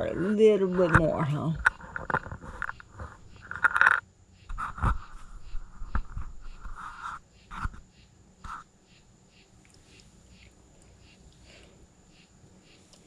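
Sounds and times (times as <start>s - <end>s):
animal smacking and slurping: 9.5s - 11.6s.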